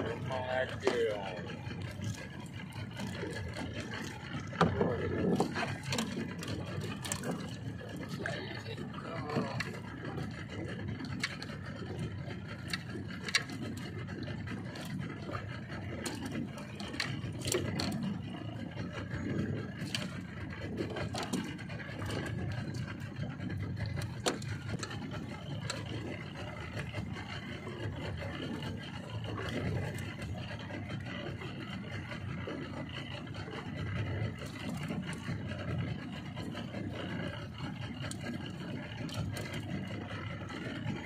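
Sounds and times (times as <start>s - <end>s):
fishing tackle clicks and scrapes: 0.0s - 8.4s, 9.0s - 41.0s
outboard motor running: 0.0s - 41.0s.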